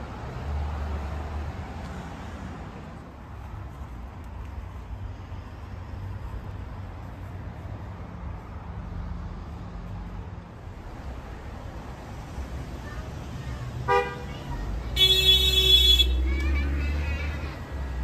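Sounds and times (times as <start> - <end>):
street traffic rumble: 0.0 - 18.0
car passing: 4.6 - 18.0.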